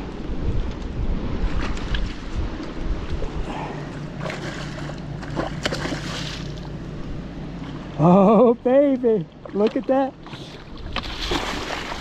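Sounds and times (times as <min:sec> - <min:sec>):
wind buffeting microphone: 0:00.0 - 0:06.4.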